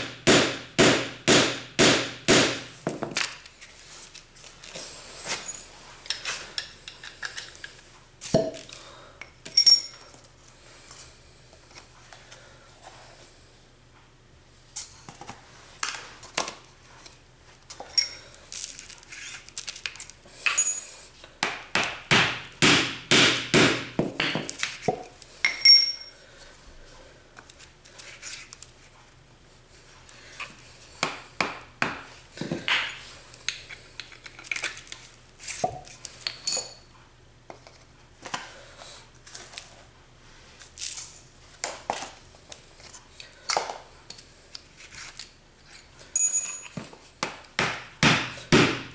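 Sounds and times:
short metallic clinks: 46.2s - 46.8s.

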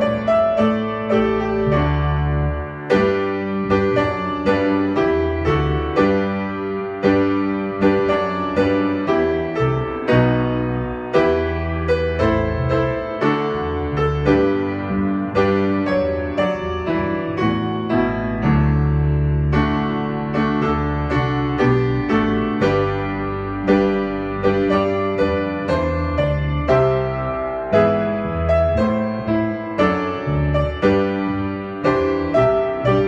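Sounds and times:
piano chords: 0.0s - 33.0s.

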